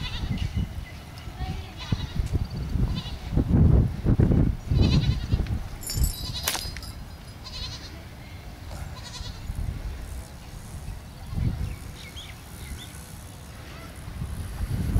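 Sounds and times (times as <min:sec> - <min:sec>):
goats bleating: 0:07.4 - 0:08.0, 0:08.8 - 0:09.5.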